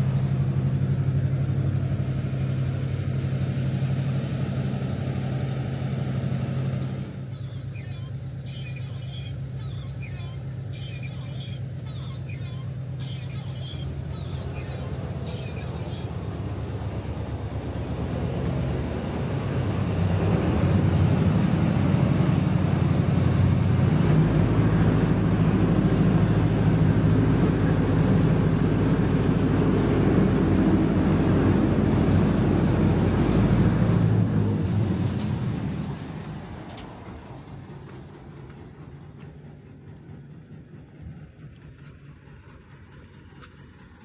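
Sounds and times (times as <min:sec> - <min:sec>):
bus engine humming: 0:00.0 - 0:44.0.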